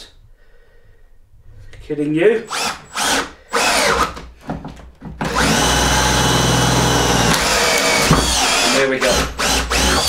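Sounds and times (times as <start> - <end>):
power drill boring into timber: 2.5 - 4.2, 5.2 - 10.0.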